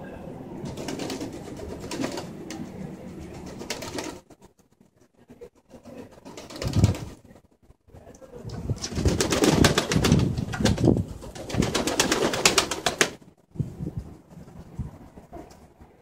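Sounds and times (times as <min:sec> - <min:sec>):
pigeons beating wings: 0:00.6 - 0:04.4, 0:05.6 - 0:07.4, 0:08.6 - 0:13.3.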